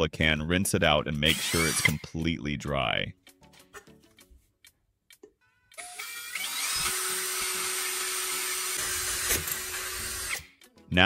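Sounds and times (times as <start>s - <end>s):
cordless drill whining: 1.3s - 2.0s, 5.8s - 10.5s.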